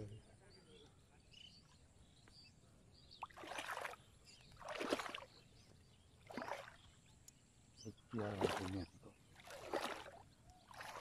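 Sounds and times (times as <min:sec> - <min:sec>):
water splashing: 0:03.2 - 0:05.4, 0:06.2 - 0:06.9, 0:08.2 - 0:11.0.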